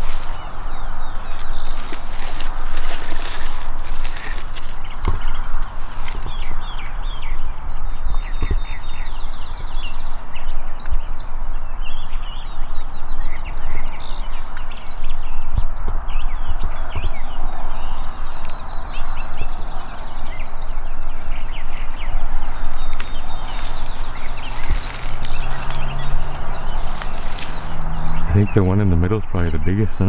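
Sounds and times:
steady rushing background: 0.0 - 9.4, 16.9 - 28.6
birds chirping: 0.0 - 30.0.

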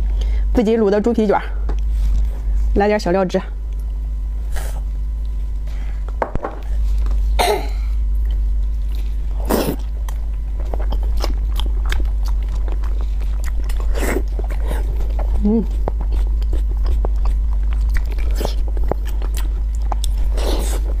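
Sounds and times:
steady low hum: 0.0 - 21.0
wet chewing and mouth clicks: 9.7 - 21.0.

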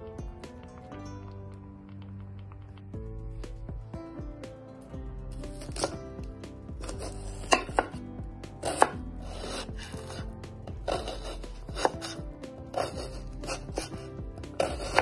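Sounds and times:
soft background music: 0.0 - 15.0
knife cutting onion: 5.3 - 6.0, 6.8 - 15.0.

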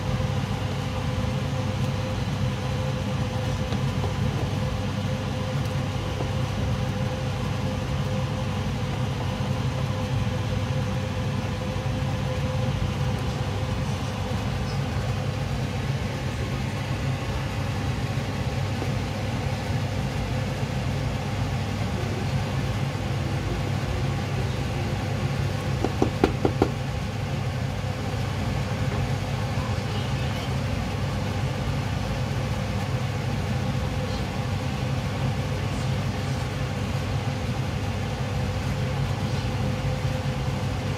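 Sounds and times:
low rumbling hum: 0.0 - 31.0.

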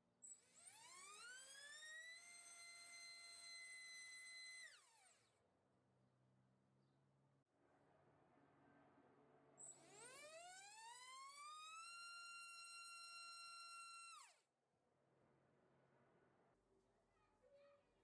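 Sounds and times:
electric motor whine: 0.5 - 5.3, 9.7 - 14.4.

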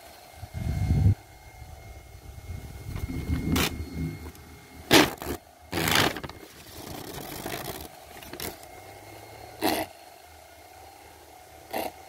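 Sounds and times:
electric fan humming: 0.0 - 12.0
fan blades shredding sheet: 0.0 - 12.0.

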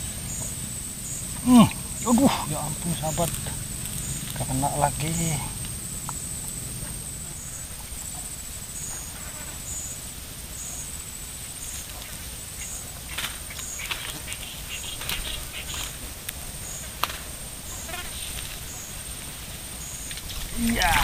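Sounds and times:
steady low rumble: 0.0 - 8.7
high-pitched pulsing buzz: 0.0 - 11.8.

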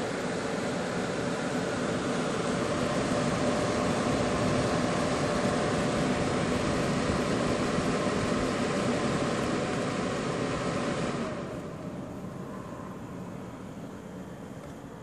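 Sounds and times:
computer fans rushing air: 0.0 - 15.0
faint even hum: 11.3 - 15.0.

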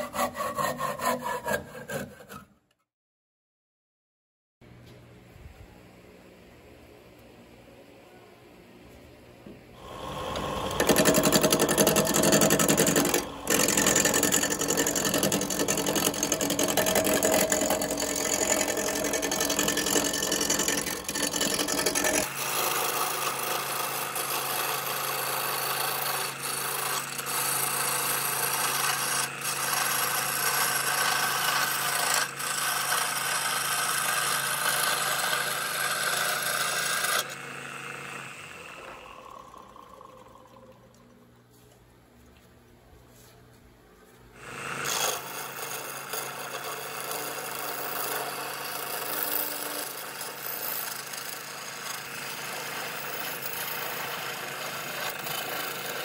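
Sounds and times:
turning tool scraping wood: 0.0 - 2.6, 9.8 - 37.4, 44.8 - 56.0
wood lathe spinning: 9.8 - 41.0, 44.4 - 56.0.

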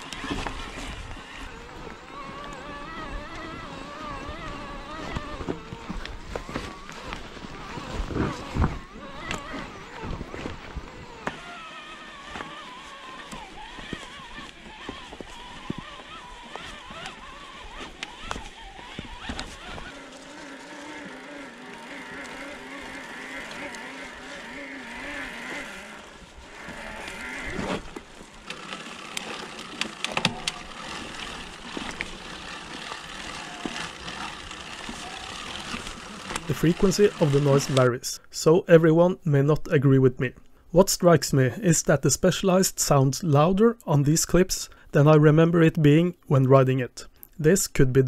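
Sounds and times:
electric bike motor whining: 0.0 - 37.9
tyre and trail noise: 0.0 - 48.0.

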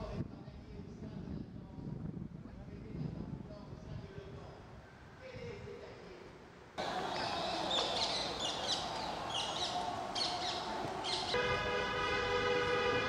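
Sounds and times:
distant city traffic hum: 6.3 - 13.0
birds calling: 6.8 - 11.4
steady horn-like tone: 11.4 - 13.0.

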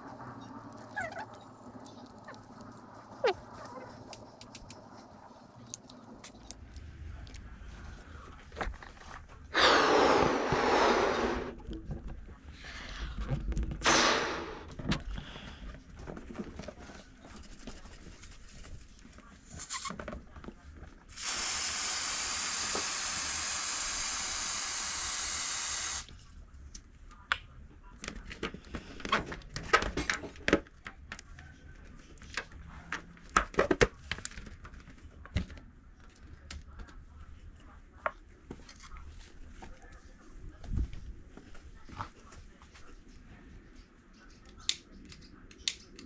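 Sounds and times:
gas hissing from aerosol can: 21.1 - 26.1.

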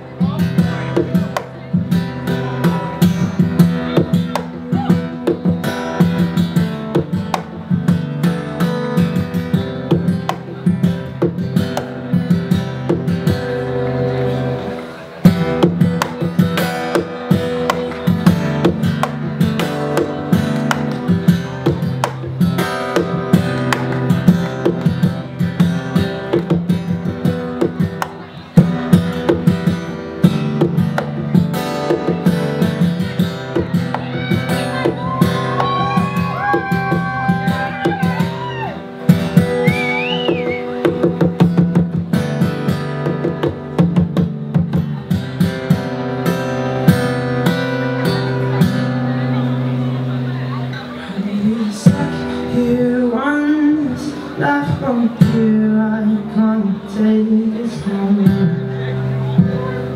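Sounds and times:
ringing guitar chords: 0.0 - 59.9
percussive slapping on guitar strings: 1.0 - 1.6, 4.0 - 5.7, 6.9 - 7.6, 9.9 - 12.1, 15.3 - 25.2, 27.6 - 29.8, 30.5 - 34.1
sliding high guitar notes: 2.0 - 43.7.

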